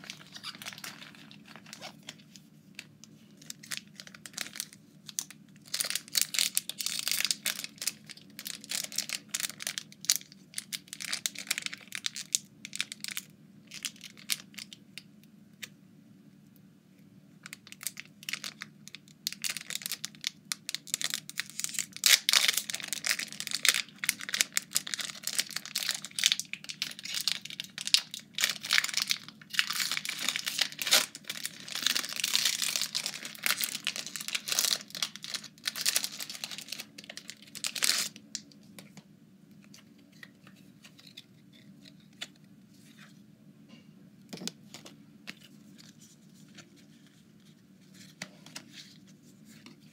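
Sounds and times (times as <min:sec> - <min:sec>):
foil wrappers crinkling: 0:00.0 - 0:14.8, 0:17.5 - 0:38.9.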